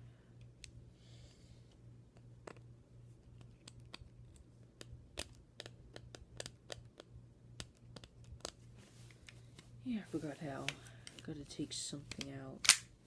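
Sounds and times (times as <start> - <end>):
pistol parts clicking: 12.1 - 12.9.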